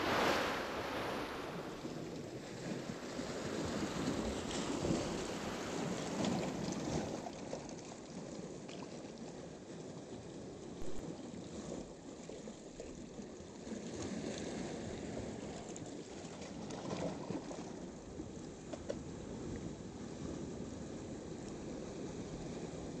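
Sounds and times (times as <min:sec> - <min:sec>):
waves washing over rocks: 0:00.0 - 0:08.6, 0:10.7 - 0:12.2.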